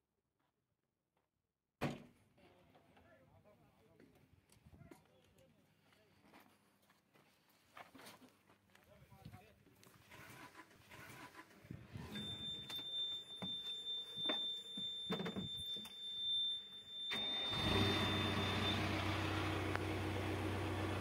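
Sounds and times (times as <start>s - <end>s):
diesel engine starting and idling: 10.1s - 12.5s, 17.0s - 21.0s
high-pitched warning tone: 12.0s - 19.4s.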